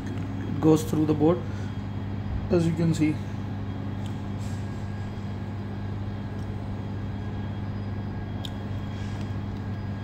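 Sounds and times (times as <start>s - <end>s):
machine humming: 0.0s - 10.0s.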